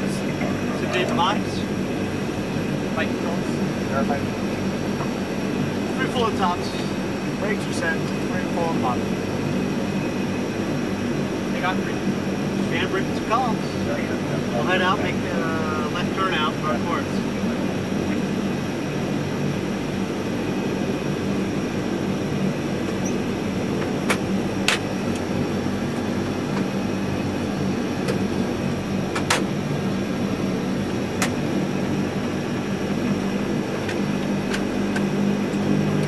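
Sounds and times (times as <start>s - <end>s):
turboprop engines droning: 0.0s - 36.0s.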